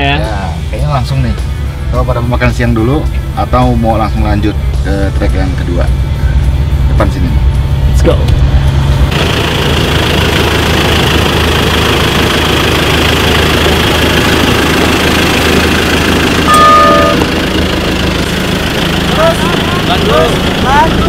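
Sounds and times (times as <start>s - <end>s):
pickup truck engine running: 1.3s - 21.0s
car horn toot: 16.4s - 17.4s.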